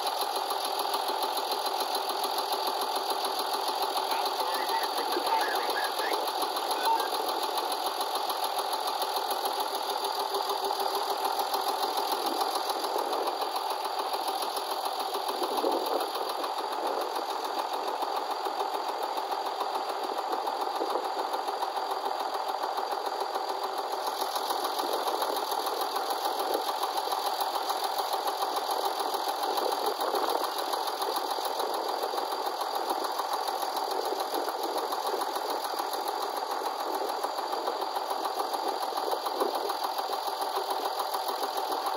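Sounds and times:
tractor diesel engine idling: 0.0s - 41.9s.

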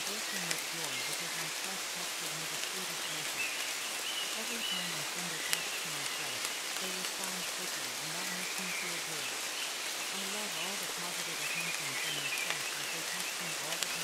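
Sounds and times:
rain hissing: 0.0s - 14.0s
faint low voice: 10.1s - 14.0s.

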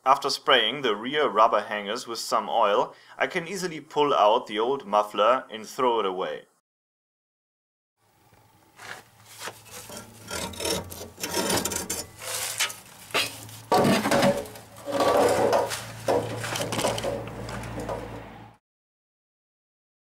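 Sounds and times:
metal and rubber scraping: 8.8s - 18.6s
metal knocks: 9.8s - 18.6s.

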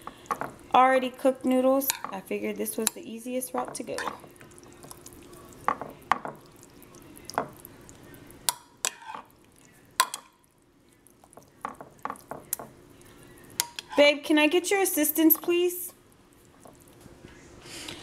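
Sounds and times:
wet stirring: 1.8s - 14.0s, 15.2s - 17.3s
spoon knocking against dish: 5.6s - 6.5s, 10.0s - 10.4s, 11.3s - 12.8s.

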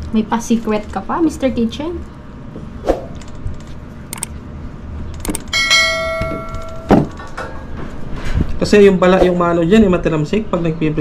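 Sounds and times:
bell-like metallic ring: 5.6s - 6.9s.

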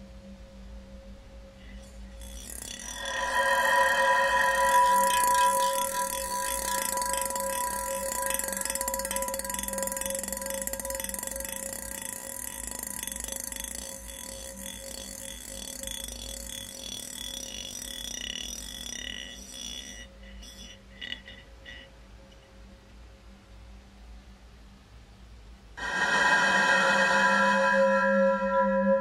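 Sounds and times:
steady high electronic tones: 1.6s - 20.8s, 25.8s - 29.0s
fast pulsing rattling texture: 2.1s - 20.7s.

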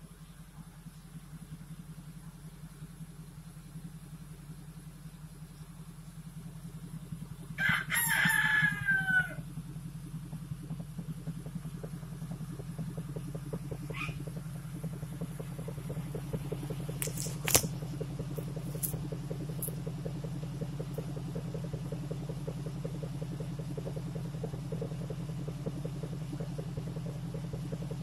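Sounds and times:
engine exhaust idling: 0.0s - 28.0s
sharp clicks: 16.9s - 19.8s.

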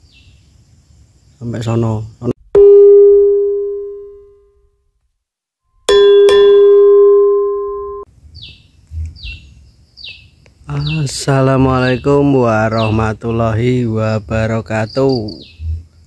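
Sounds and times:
bird chirping: 0.0s - 2.3s, 8.3s - 16.0s
bell-like ding: 2.6s - 4.4s, 5.8s - 8.1s.

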